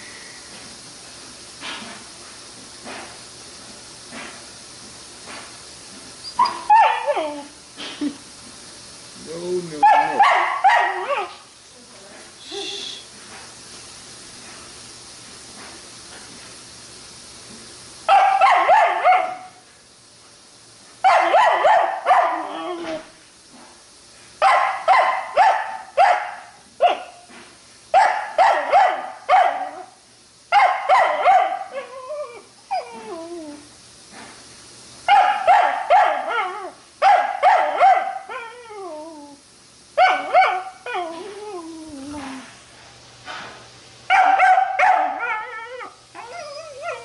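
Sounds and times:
puppy whining: 0:06.2 - 0:08.0, 0:22.3 - 0:23.1, 0:31.7 - 0:33.7, 0:38.3 - 0:39.4, 0:40.1 - 0:42.6, 0:45.0 - 0:47.0
puppy yelping and barking: 0:06.3 - 0:07.3.

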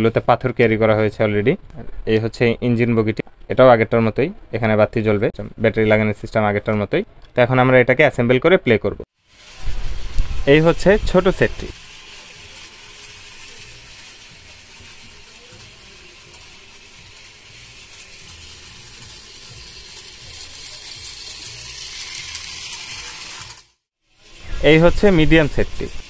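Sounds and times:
toy train motor running: 0:09.2 - 0:26.0.

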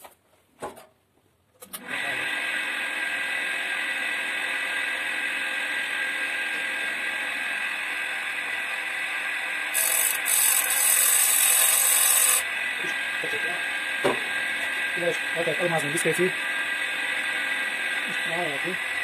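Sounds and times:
grinder motor whirring: 0:01.8 - 0:19.0
grinding disc on chain: 0:09.7 - 0:12.4.

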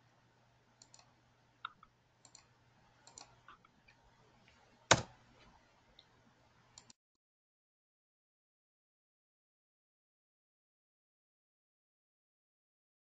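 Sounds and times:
faint low hum: 0:00.0 - 0:07.0
computer control clicks: 0:00.8 - 0:03.6, 0:04.9 - 0:05.1.

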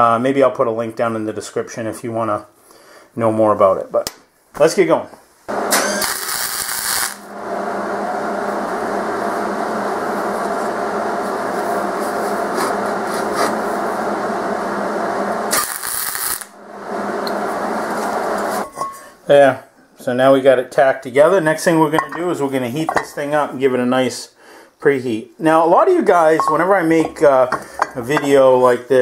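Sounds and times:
welding arc crackling: 0:05.5 - 0:18.6.

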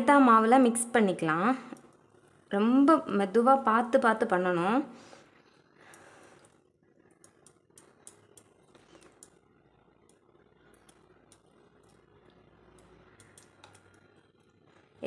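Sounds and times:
soft squishes of batter: 0:05.2 - 0:15.0.

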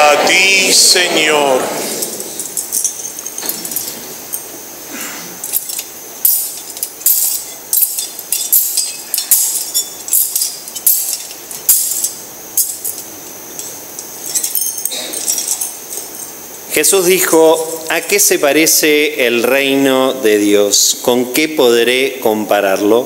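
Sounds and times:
censer chains clinking: 0:01.8 - 0:04.7, 0:05.3 - 0:18.2.

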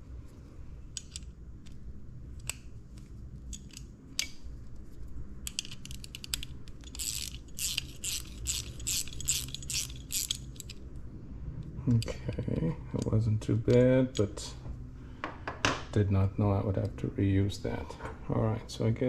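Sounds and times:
ratchet wrench clicking: 0:05.4 - 0:10.8.

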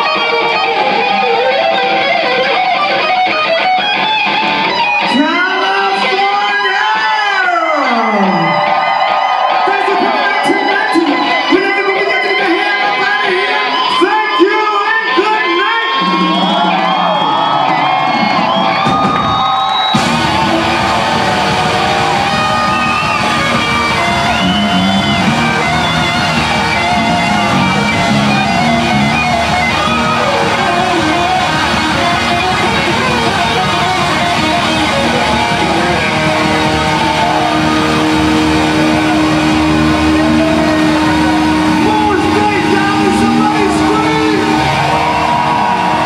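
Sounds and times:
funk band playing: 0:00.0 - 0:06.3, 0:18.7 - 0:46.0.

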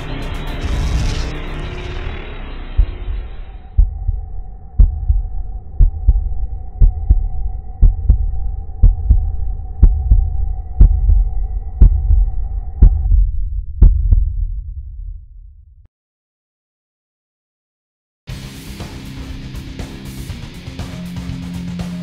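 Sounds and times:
low drone: 0:00.0 - 0:15.8
heartbeat thumps: 0:00.6 - 0:15.4.

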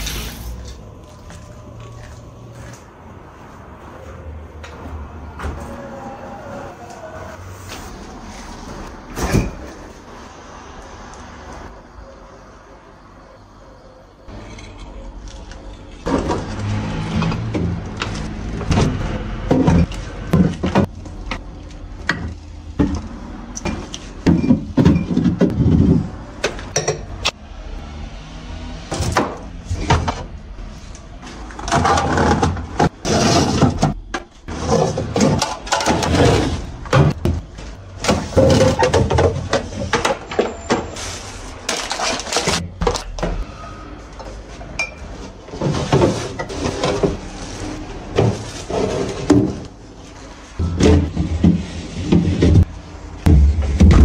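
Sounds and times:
rustling and scraping: 0:29.6 - 0:43.1, 0:44.0 - 0:52.7
glass and plastic clinking: 0:44.8 - 0:45.2.

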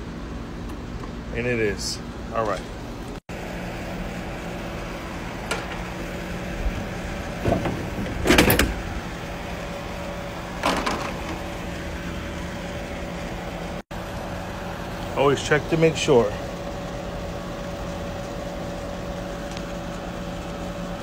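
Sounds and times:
steady machine hum: 0:00.0 - 0:21.0
scraping and knocking handling noises: 0:07.4 - 0:08.8.

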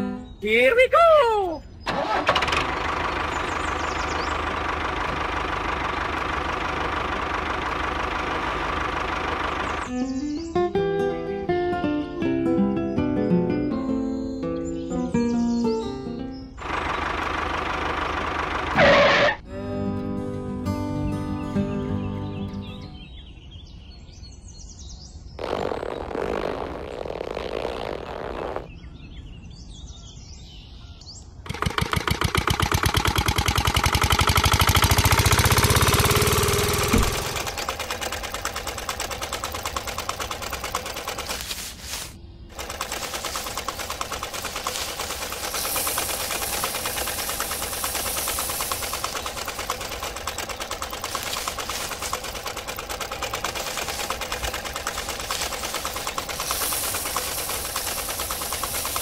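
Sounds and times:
small motor mechanical rattle: 0:31.4 - 0:59.0
hissing rustle of wheat stalks: 0:36.4 - 0:59.0.

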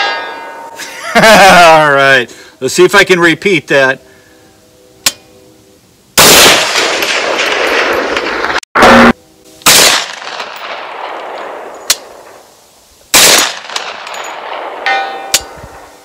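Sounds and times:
gunshots with long echo: 0:06.2 - 0:12.5, 0:13.1 - 0:15.9.

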